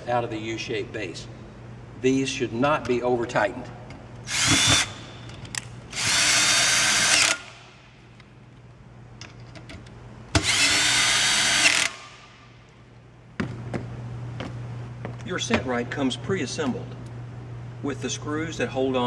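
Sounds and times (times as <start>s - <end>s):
cordless drill whining: 5.9s - 7.5s, 10.4s - 12.0s.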